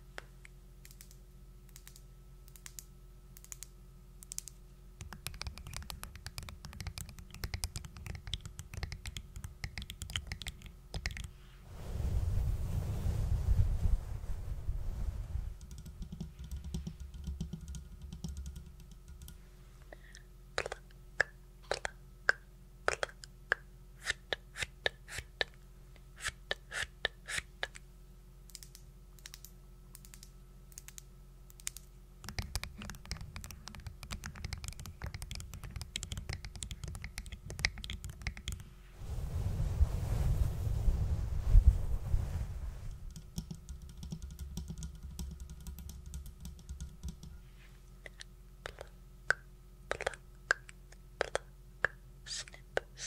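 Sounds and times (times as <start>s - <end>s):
quick tapping and clicking: 5.0s - 11.3s, 15.6s - 19.4s, 31.7s - 38.7s, 43.1s - 47.4s
low rustling rumble: 11.7s - 15.6s, 39.0s - 43.2s.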